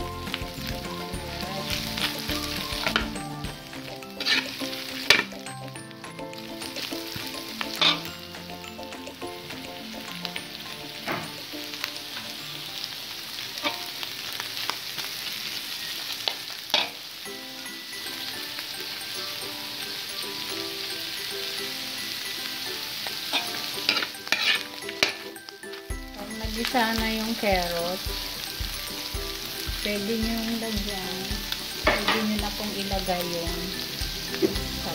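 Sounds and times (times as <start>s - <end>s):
food sizzling in a wok: 0.0s - 34.9s
metal spatula scraping pan: 4.0s - 5.3s, 7.7s - 8.2s, 23.3s - 25.3s.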